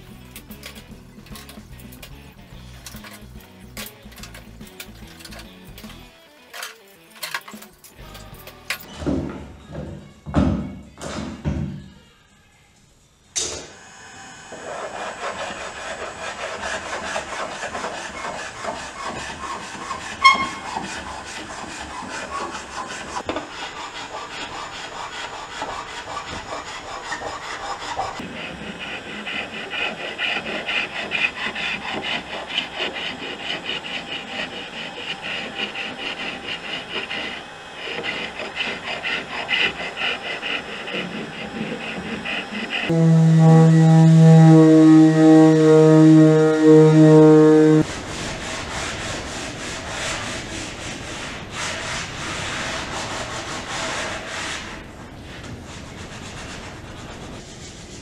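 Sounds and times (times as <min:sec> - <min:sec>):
heat gun blowing: 0:42.2 - 0:47.9.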